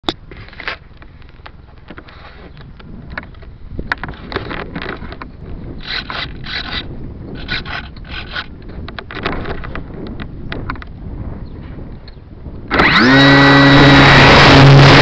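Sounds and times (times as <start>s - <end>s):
wind rumble on microphone: 0.0s - 15.0s
scraping and rustling handling noise: 0.3s - 5.3s.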